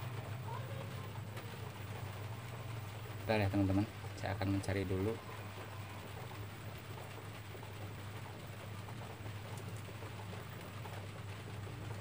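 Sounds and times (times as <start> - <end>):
television static hiss: 0.0 - 12.0.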